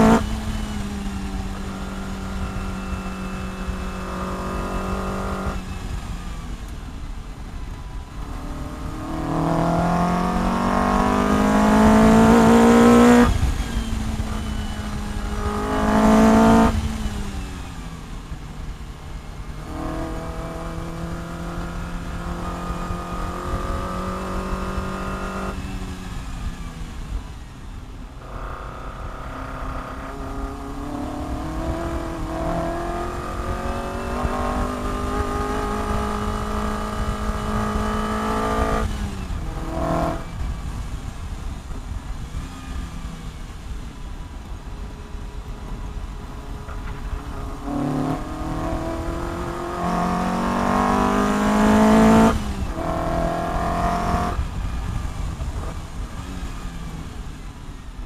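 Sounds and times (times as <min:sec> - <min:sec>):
sports car engine revving: 0:00.0 - 0:27.4, 0:28.2 - 0:57.4
wind buffeting: 0:00.0 - 0:57.7.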